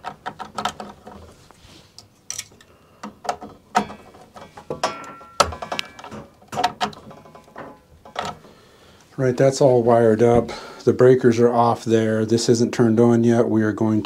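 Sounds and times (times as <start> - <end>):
clicks and metal scrapes: 0.0 - 8.6.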